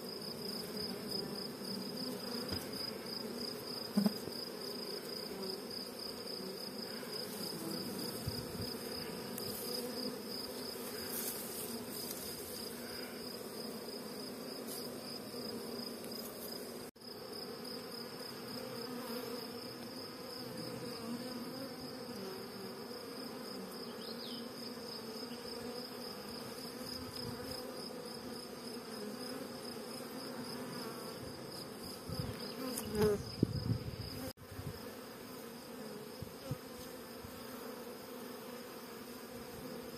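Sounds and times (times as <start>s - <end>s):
bee swarm humming: 0.0s - 39.9s.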